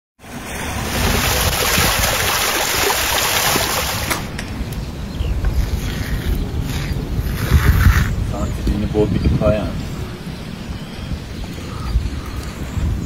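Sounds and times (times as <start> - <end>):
water pouring and splashing: 0.2 - 4.4
wind rumble on microphone: 0.2 - 13.0.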